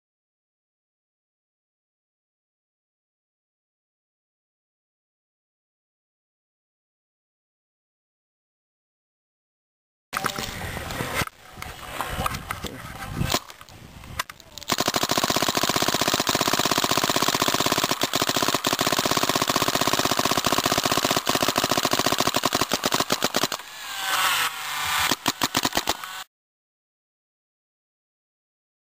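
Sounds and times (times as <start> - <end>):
paintball marker rapid firing: 14.6 - 26.3.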